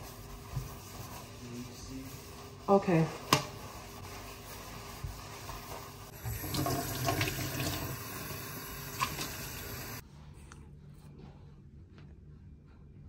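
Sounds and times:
tap water splashing into steel sink: 8.9s - 9.5s.

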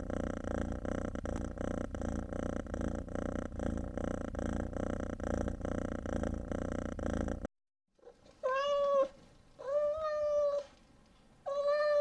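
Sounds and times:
cat purring: 0.0s - 10.7s
cat meowing: 8.4s - 10.7s, 11.5s - 12.0s.

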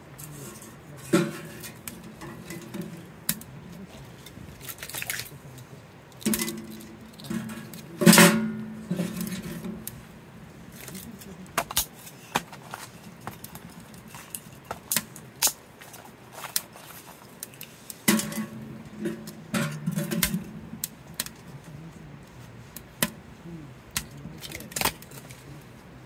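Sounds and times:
firewood crackling and popping: 0.0s - 26.0s.

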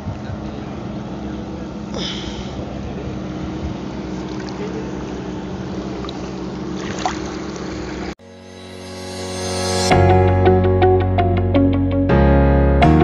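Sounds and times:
water: 0.0s - 8.2s
motorboat engine humming: 0.0s - 13.0s
wind noise: 2.8s - 4.3s.

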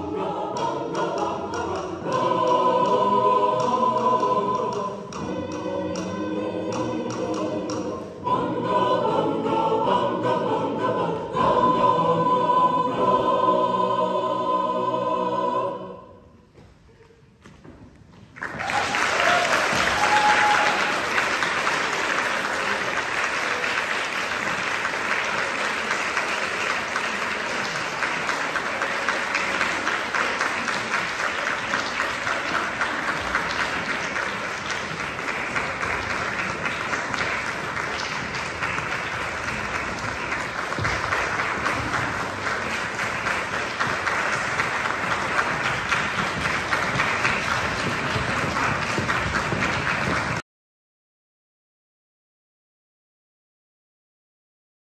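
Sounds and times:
audience applauding: 18.4s - 50.4s.

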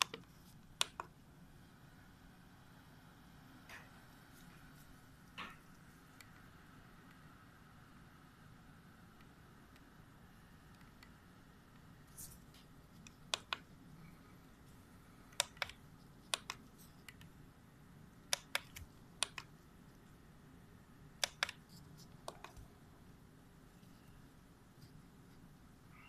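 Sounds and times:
faint room hiss: 0.0s - 26.0s
sharp light clicks: 21.2s - 21.6s.

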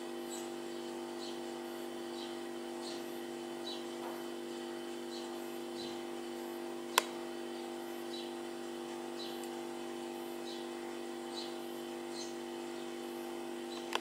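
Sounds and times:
steady low hum: 0.0s - 14.0s
fledgling sparrow chirping: 2.2s - 3.9s, 5.1s - 6.0s, 8.1s - 8.3s, 9.2s - 9.4s, 11.3s - 12.9s.

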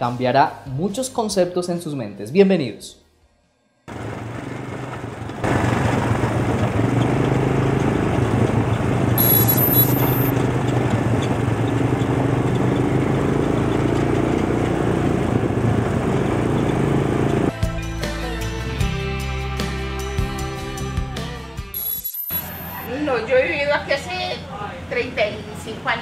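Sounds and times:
road and wind noise: 3.9s - 9.4s, 10.2s - 17.5s
quad bike engine running: 4.0s - 9.4s, 10.2s - 17.5s.

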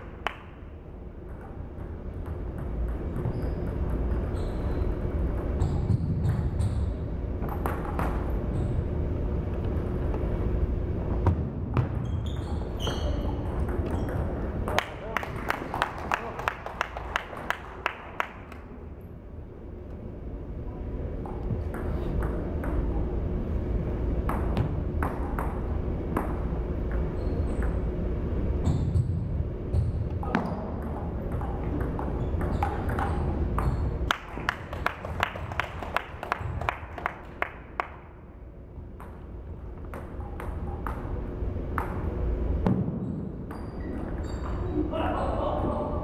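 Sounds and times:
steady low hum: 0.0s - 46.0s.

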